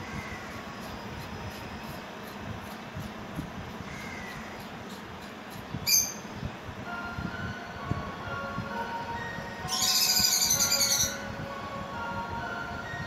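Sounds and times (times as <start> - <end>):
bird chirp: 5.8 - 6.3, 9.6 - 11.2.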